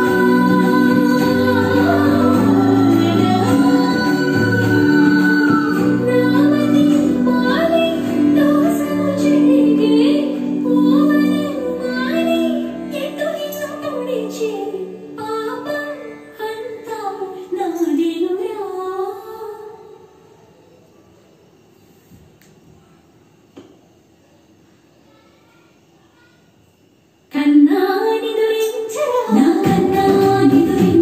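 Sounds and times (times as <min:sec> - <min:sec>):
song with high singing voice: 0:00.0 - 0:20.3, 0:27.4 - 0:31.0
faint room noise: 0:00.0 - 0:31.0.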